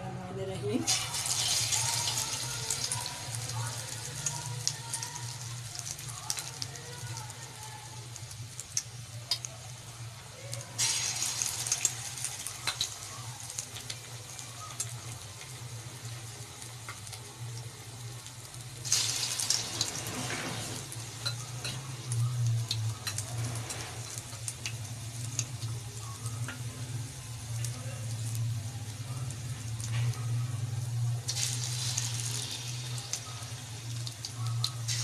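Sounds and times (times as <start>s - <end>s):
oil sizzling and crackling: 0.8s - 35.0s.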